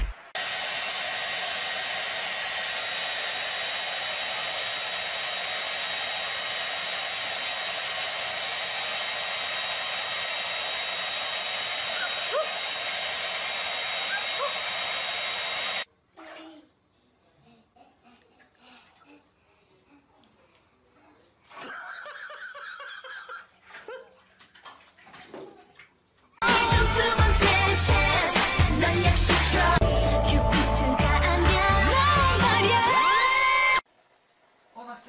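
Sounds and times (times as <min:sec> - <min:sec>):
hair dryer running: 0:00.0 - 0:15.9, 0:26.4 - 0:29.9.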